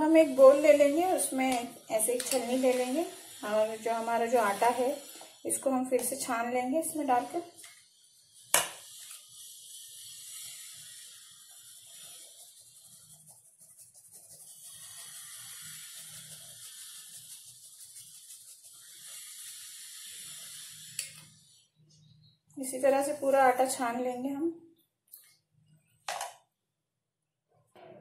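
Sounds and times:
flour sifting through strainer: 0.0 - 21.0.

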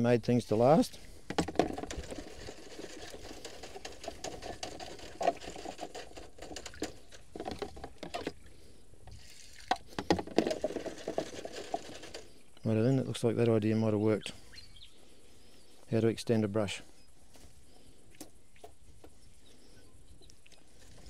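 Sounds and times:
stiff brush scrubbing metal: 1.8 - 8.2.

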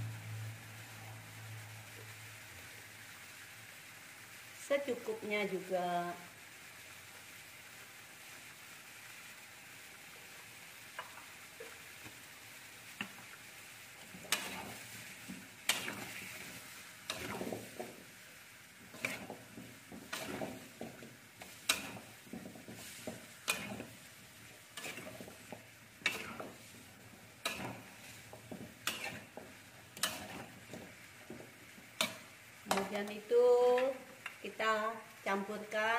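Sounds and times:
food sizzling in a pan: 0.0 - 35.9
metal spatula scraping a wok: 14.1 - 18.0, 18.8 - 33.0.

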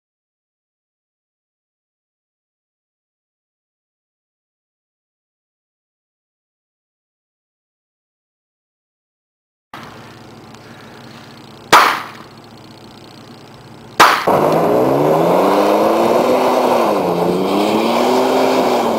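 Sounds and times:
gunshots with ringing tail: 11.7 - 12.3
pickup truck engine revving: 13.5 - 18.9.

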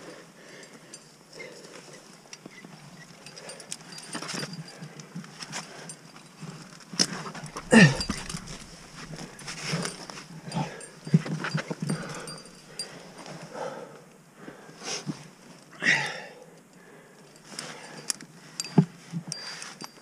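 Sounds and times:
person breathing hard: 7.5 - 15.1
person grunting with effort: 7.6 - 10.0.

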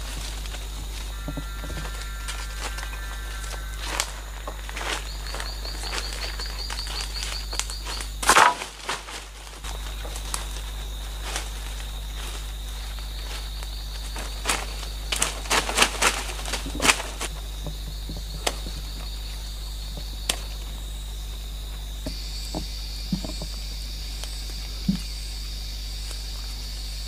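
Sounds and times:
twigs snapping and crackling: 0.0 - 19.1, 20.0 - 20.7
insect drone: 0.0 - 27.0.

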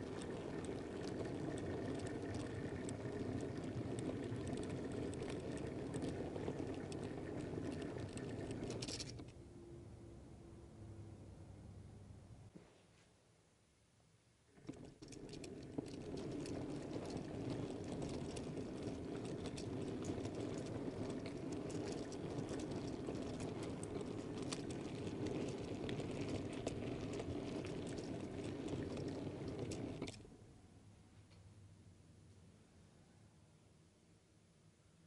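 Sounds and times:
model train wheels rumbling on rail: 0.0 - 9.3, 14.6 - 30.3
wheels clicking over rail joints: 0.0 - 9.3, 14.6 - 30.3.

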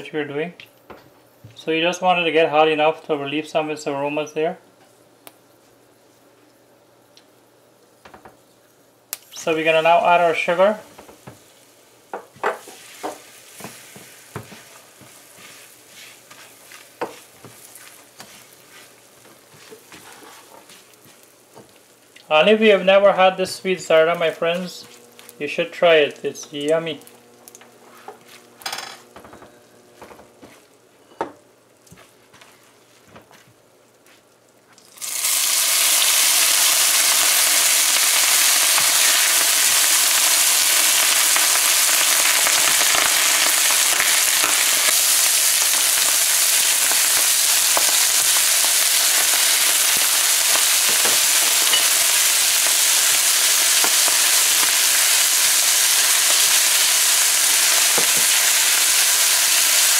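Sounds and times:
loud steady sizzle: 0.0 - 59.9
spatula scraping in pan: 12.5 - 20.9.

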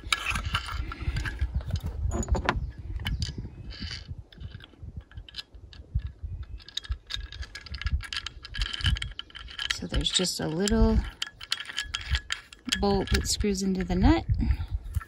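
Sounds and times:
metal hardware clicking: 4.4 - 14.0.

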